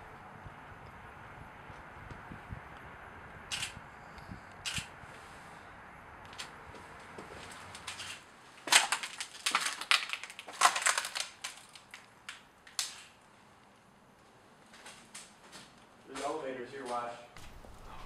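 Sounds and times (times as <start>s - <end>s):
footsteps crunching over debris: 6.4s - 12.9s.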